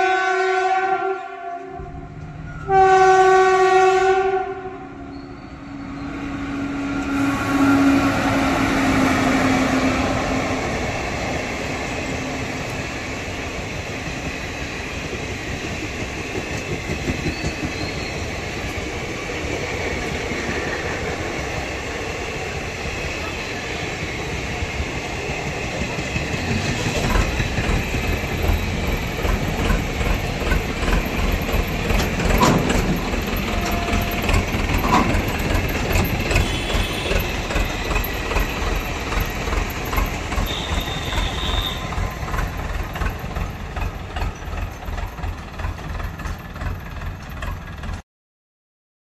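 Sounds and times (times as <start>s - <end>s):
train wheels clattering over rail joints: 13.6s - 22.6s, 24.3s - 48.0s.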